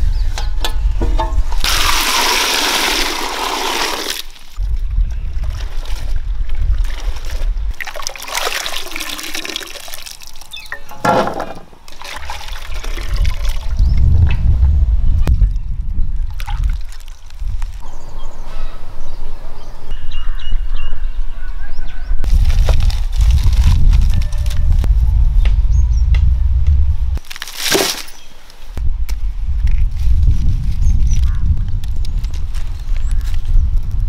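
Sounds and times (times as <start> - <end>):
water pouring into metal pot: 1.6 - 4.3, 7.9 - 10.5
water splashing and dripping: 1.6 - 14.4, 16.2 - 17.8.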